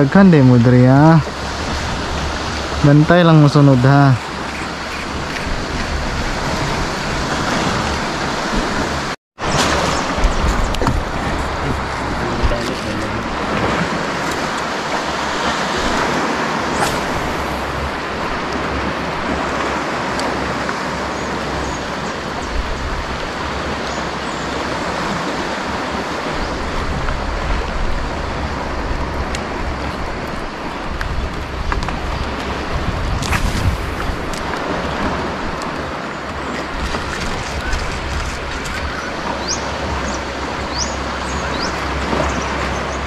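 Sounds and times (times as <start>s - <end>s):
wind and water rushing: 0.0s - 43.0s
wind buffeting microphone: 0.0s - 43.0s.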